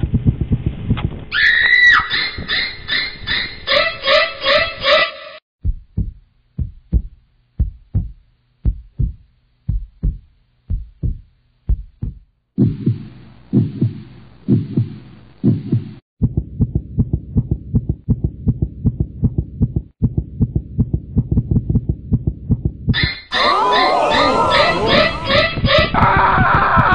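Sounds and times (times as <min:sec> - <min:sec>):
heartbeat thumps: 0:00.0 - 0:01.3, 0:05.6 - 0:23.1.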